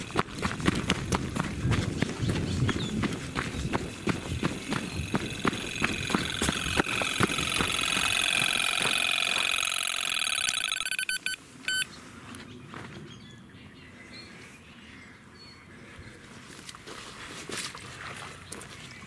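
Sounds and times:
hurried footsteps: 0.0s - 9.9s
warbling bite alarm tone: 4.7s - 11.4s
short beep: 10.4s - 11.9s.

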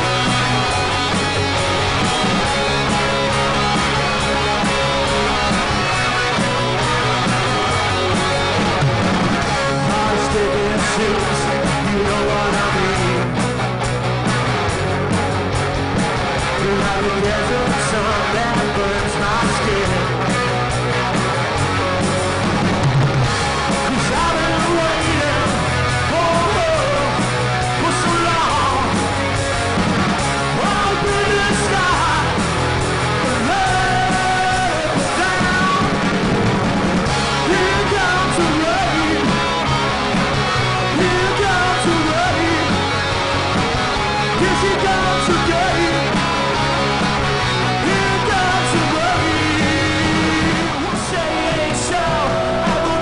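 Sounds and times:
live rock band playing: 0.0s - 53.0s
person shouting and singing: 9.5s - 13.4s, 23.8s - 29.2s, 30.4s - 32.6s, 33.2s - 36.1s, 37.3s - 39.9s, 40.6s - 43.4s, 44.1s - 46.7s, 47.5s - 53.0s.

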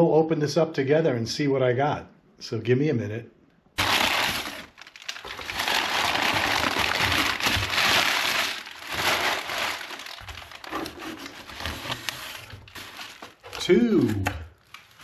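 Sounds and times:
packaging crinkling and rustling: 3.8s - 15.0s.

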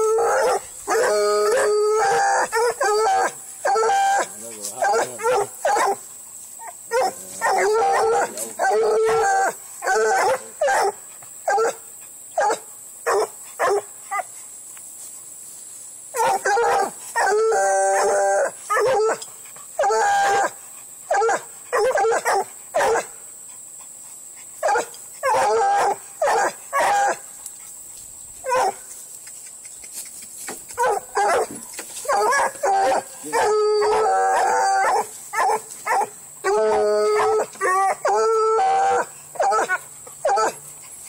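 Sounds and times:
dog barking: 2.4s - 6.0s, 9.8s - 11.8s, 12.4s - 13.9s, 21.1s - 23.1s, 24.6s - 27.2s, 28.5s - 28.8s, 30.8s - 36.1s.

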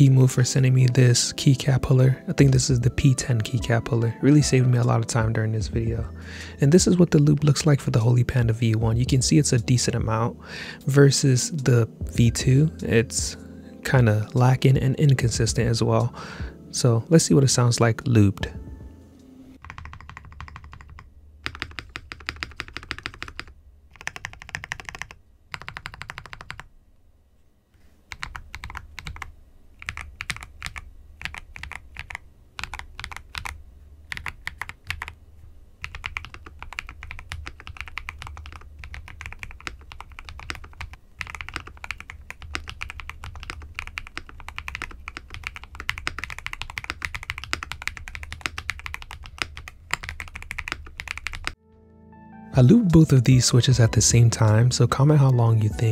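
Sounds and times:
mechanical keyboard typing: 19.6s - 26.7s, 28.1s - 35.2s, 35.8s - 51.6s.

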